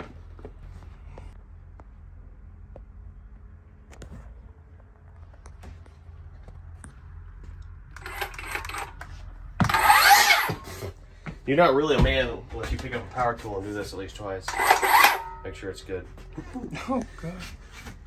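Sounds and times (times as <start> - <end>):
circular saw running: 8.0 - 9.0, 9.6 - 10.6, 14.5 - 15.4.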